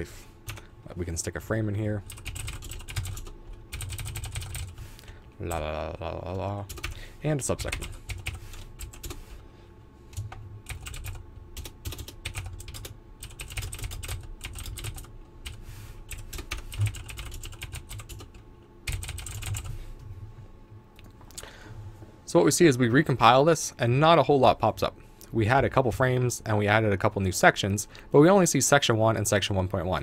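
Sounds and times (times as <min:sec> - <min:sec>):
computer keyboard typing: 0:02.1 - 0:04.8, 0:06.7 - 0:07.0, 0:07.6 - 0:09.2, 0:10.1 - 0:19.7.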